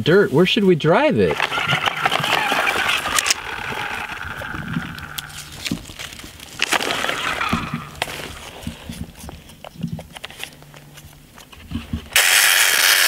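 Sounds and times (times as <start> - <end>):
wheels clicking and crunching: 1.1 - 13.0
toy truck flywheel whirring: 1.3 - 9.3, 12.1 - 13.0.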